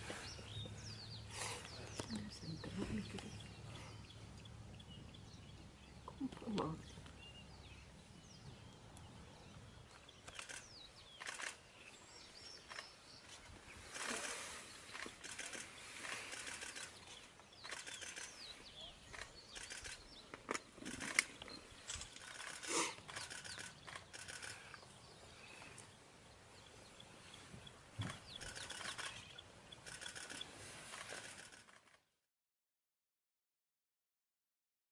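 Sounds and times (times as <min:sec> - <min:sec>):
birds calling rapid notes: 0:00.1 - 0:31.5
high sweeping bird calls: 0:09.4 - 0:31.5
sharp clicks: 0:10.2 - 0:11.6, 0:19.1 - 0:24.8.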